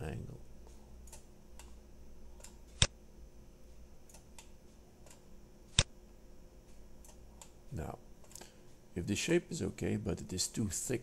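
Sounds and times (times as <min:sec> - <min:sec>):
computer mouse clicks: 0:00.6 - 0:01.8, 0:02.4 - 0:03.0, 0:04.1 - 0:05.9, 0:07.0 - 0:07.6.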